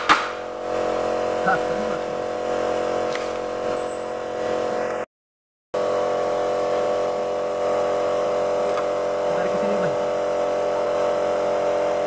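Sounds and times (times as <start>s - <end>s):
steady mechanical drone: 0.0s - 5.1s, 5.8s - 12.0s.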